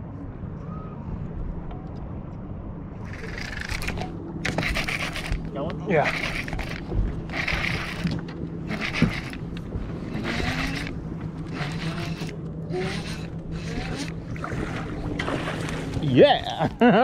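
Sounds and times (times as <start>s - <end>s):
low hum: 0.0s - 17.0s
fishing reel gears cranking: 3.0s - 14.2s.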